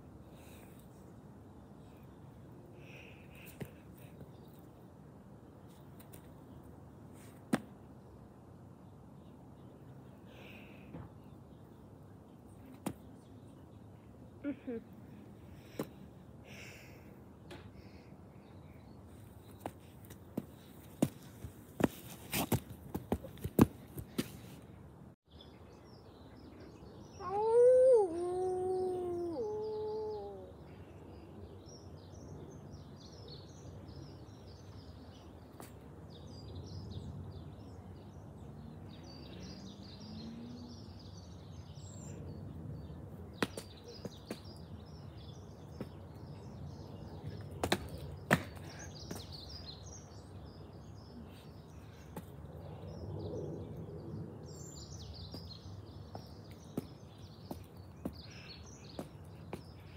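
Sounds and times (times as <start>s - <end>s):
birds chirping faintly: 0.0s - 59.9s
child imitating wolf howl: 27.2s - 30.6s.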